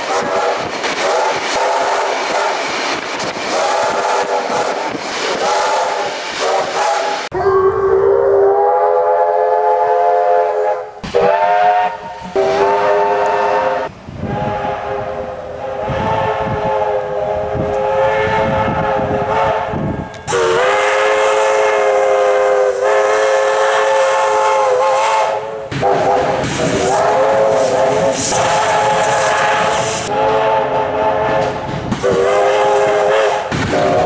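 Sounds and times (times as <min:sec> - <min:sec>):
rail noise: 0:00.0 - 0:34.0
steam locomotive chime whistle: 0:08.4 - 0:34.0.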